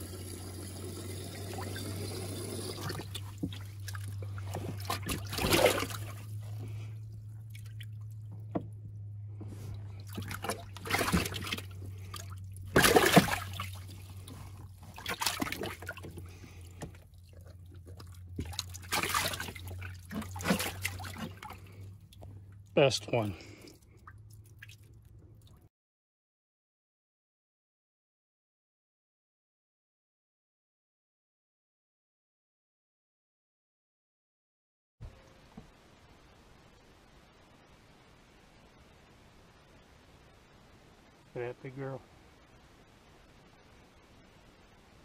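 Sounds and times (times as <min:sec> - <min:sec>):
water splashing and trickling: 0:00.0 - 0:25.7
steady low hum: 0:00.1 - 0:25.3.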